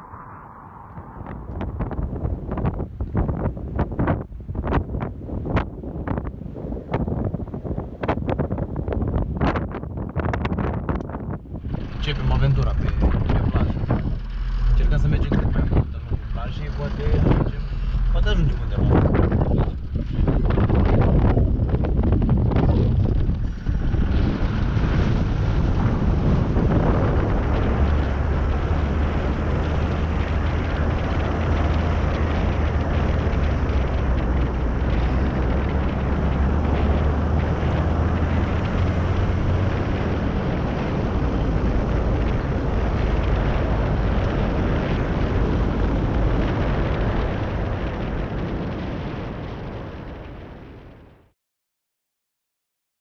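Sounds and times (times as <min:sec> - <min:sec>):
rushing wind noise: 0:00.0 - 0:51.3
vehicle engine running: 0:11.0 - 0:48.8.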